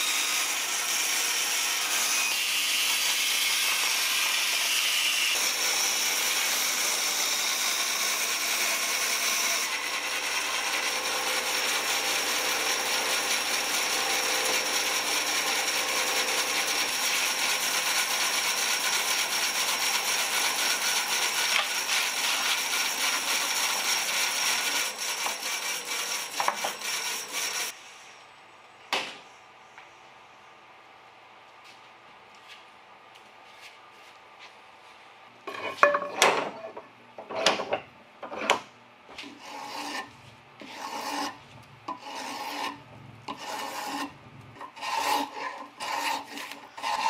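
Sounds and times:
bandsaw cutting wood: 0.0 - 27.8, 39.2 - 47.0
saw blade whine: 0.0 - 27.8.

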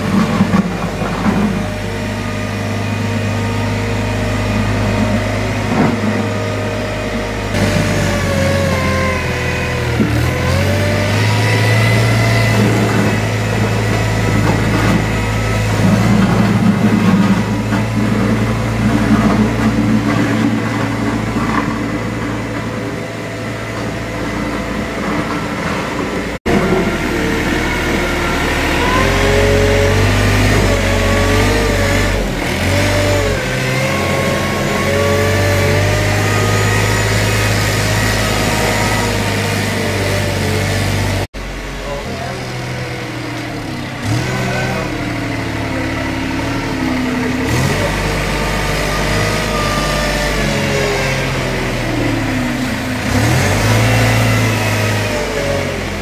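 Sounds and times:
diesel engine revving: 0.0 - 56.0.

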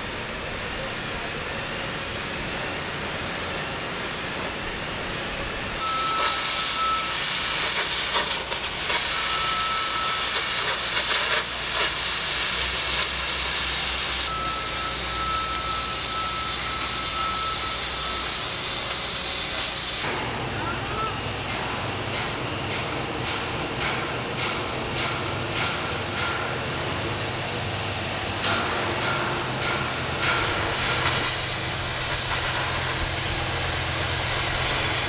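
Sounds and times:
cutting torch hissing: 5.8 - 20.1, 30.4 - 35.0.

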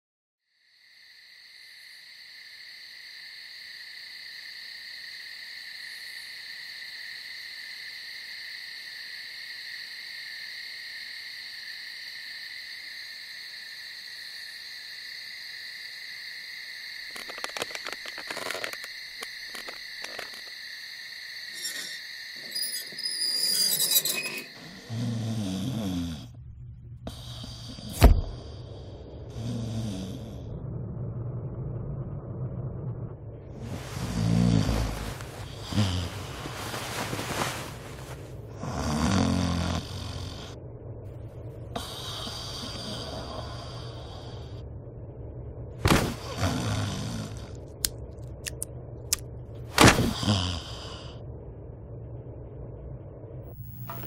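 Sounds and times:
low rumbling hum: 26.2 - 38.8, 39.8 - 54.0.

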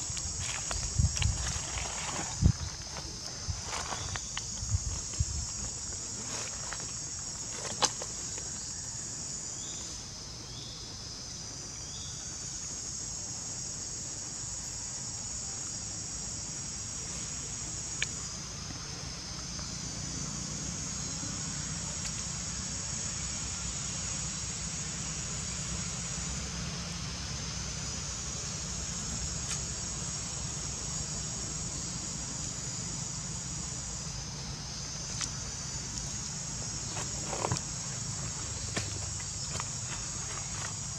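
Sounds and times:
shrill insect chorus: 0.0 - 40.9.

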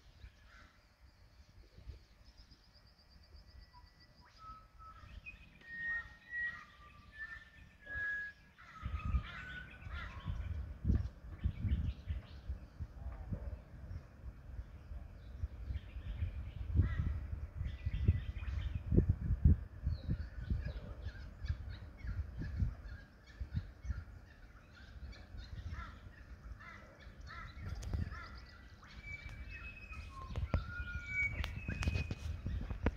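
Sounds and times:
wild bird calls and songs: 0.0 - 32.9
clear whistled notes: 3.6 - 8.5, 29.0 - 32.2
wind buffeting microphone: 6.3 - 32.9.

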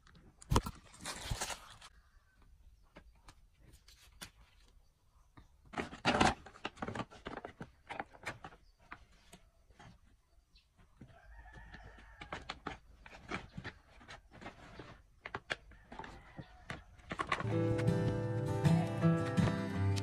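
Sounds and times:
rooster crowing: 11.1 - 12.5.

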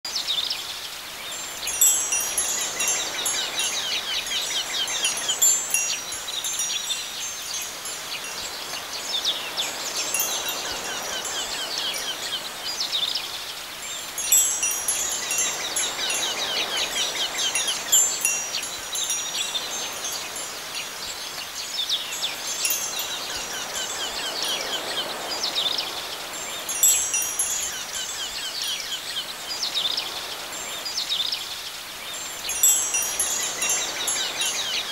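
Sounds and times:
soft steady hiss: 0.1 - 34.9
wind chimes tinkling: 1.0 - 34.9.

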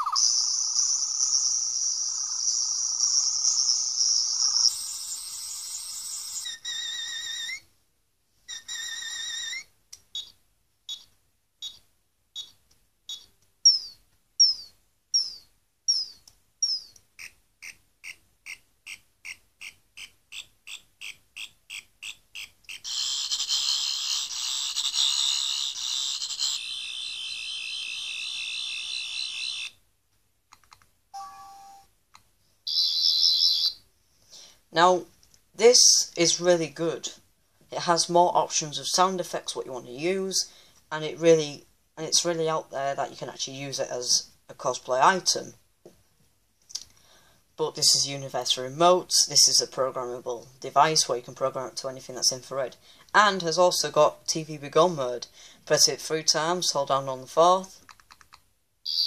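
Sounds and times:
electronic sound effects: 0.0 - 0.3
electronic chirps and beeps: 0.0 - 6.5, 10.2 - 11.8, 12.4 - 14.6, 31.2 - 31.9, 32.7 - 33.8
loud buzzing warble: 0.0 - 6.5.

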